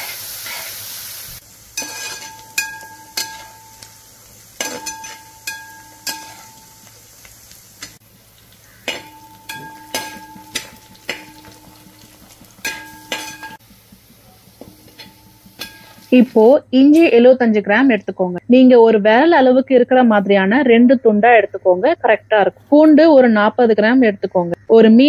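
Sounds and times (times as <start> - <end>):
onions sizzling in oil: 0.0 - 17.1
metal skimmer clinking on pot: 1.8 - 6.9, 8.7 - 13.7, 14.4 - 16.3.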